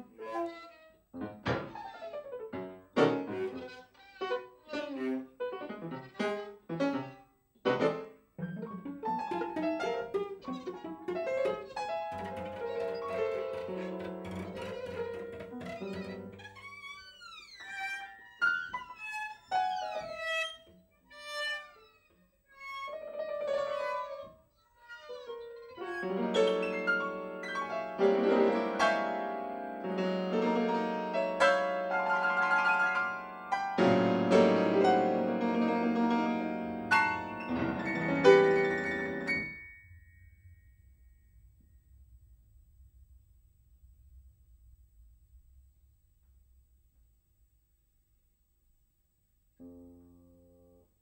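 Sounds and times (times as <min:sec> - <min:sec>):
violin cello and piano chamber music: 0:00.0 - 0:40.2.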